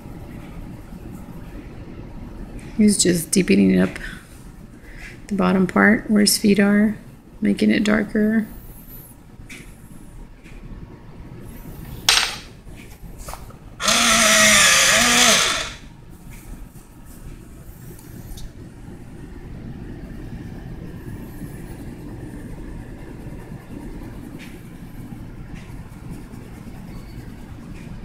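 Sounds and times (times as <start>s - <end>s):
motor machine grinding: 13.8s - 15.8s.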